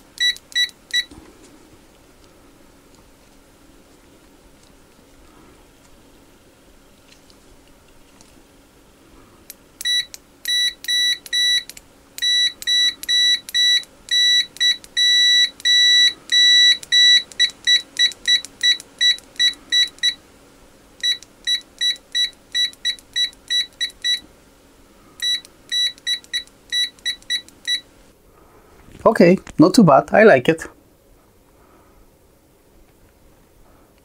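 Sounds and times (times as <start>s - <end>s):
multimeter continuity beeps: 0.0s - 1.1s, 9.8s - 20.2s, 21.0s - 24.3s, 25.2s - 27.9s.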